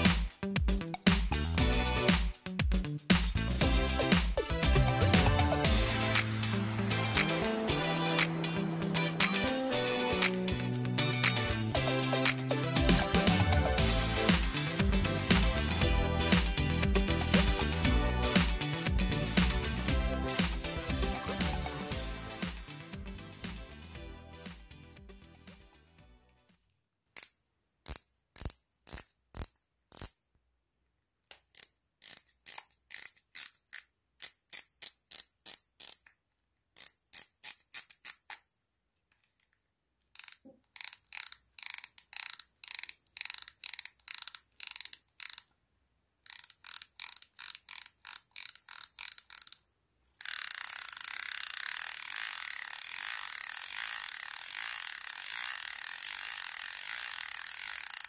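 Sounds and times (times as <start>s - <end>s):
reel drag buzzing ratchet: 5.1s - 20.5s, 27.9s - 30.2s, 31.6s - 36.0s, 40.2s - 45.5s, 46.3s - 49.6s, 50.2s - 58.0s
fishing reel drag clicking: 7.2s - 12.6s, 27.2s - 30.2s, 31.6s - 36.1s, 40.1s - 45.5s, 46.2s - 49.6s, 50.2s - 58.0s.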